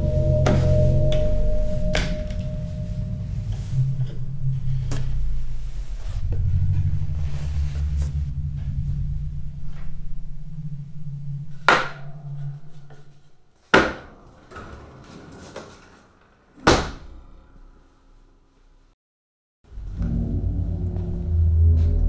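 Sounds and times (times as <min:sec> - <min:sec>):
heavy bangs with ringing tail: 0:00.0 - 0:04.4
low steady drone: 0:00.0 - 0:13.4, 0:19.7 - 0:22.0.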